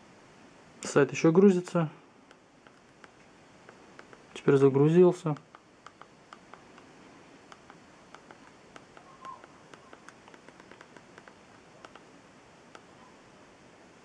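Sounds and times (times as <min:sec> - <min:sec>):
rapid light button clicks: 0:07.5 - 0:12.1.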